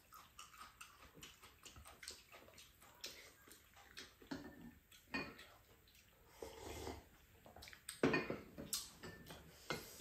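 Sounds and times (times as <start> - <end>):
people chewing and slurping noodles: 0.0 - 10.0.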